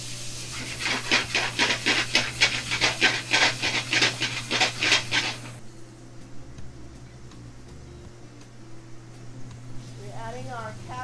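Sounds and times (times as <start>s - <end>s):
vegetables sizzling in a pan: 0.0s - 5.6s.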